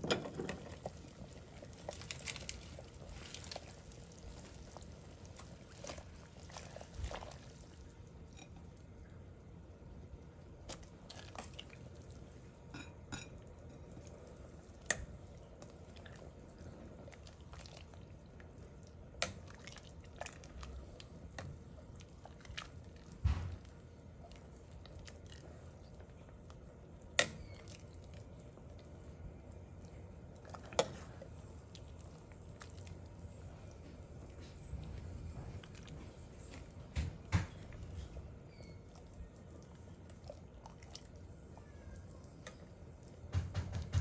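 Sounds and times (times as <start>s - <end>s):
broth sloshing: 0.0s - 8.5s, 15.2s - 26.8s.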